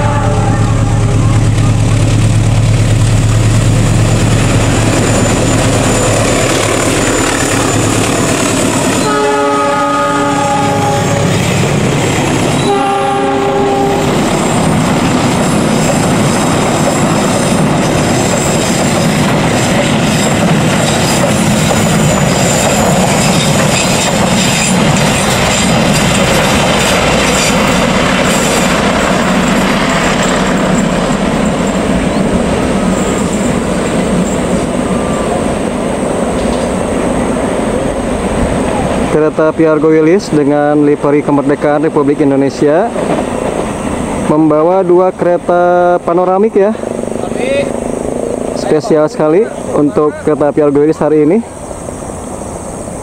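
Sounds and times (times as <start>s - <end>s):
train horn blast: 0.0s - 1.9s, 9.0s - 11.4s, 12.6s - 14.2s
train carriages rumbling past: 0.0s - 53.0s
wheels clacking over rail joints: 14.0s - 39.1s, 42.6s - 44.3s.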